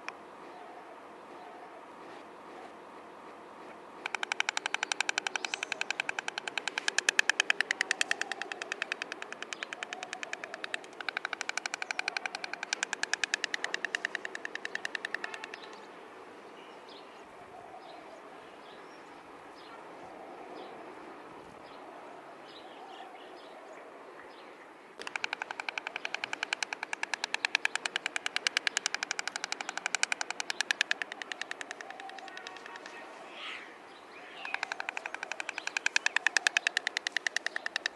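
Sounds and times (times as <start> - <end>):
stork bill clattering: 4.0 - 15.8, 25.0 - 33.1, 34.4 - 37.9.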